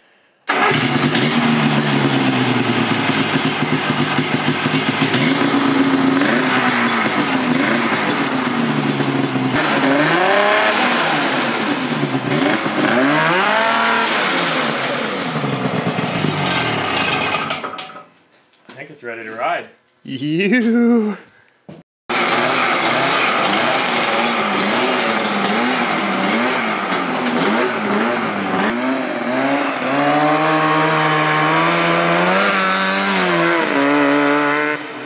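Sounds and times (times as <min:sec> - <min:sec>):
engine revving: 0:00.5 - 0:17.8, 0:22.1 - 0:35.0.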